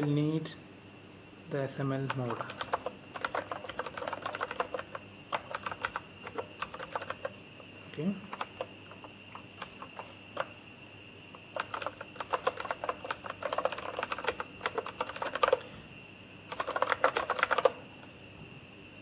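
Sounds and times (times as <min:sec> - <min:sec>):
typing on computer keyboard: 0:02.0 - 0:07.4, 0:08.2 - 0:10.5, 0:11.4 - 0:15.7, 0:16.5 - 0:17.8.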